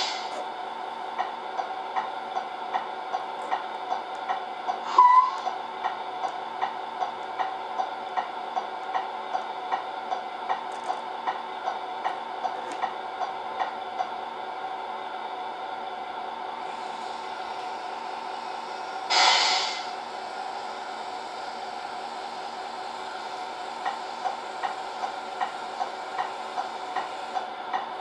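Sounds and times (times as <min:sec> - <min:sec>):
short beep: 0:04.9 - 0:05.4.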